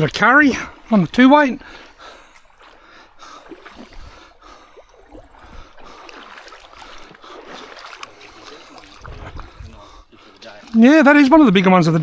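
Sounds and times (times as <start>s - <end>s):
stream trickling: 0.0s - 12.0s
fish splashing at surface: 3.3s - 10.8s.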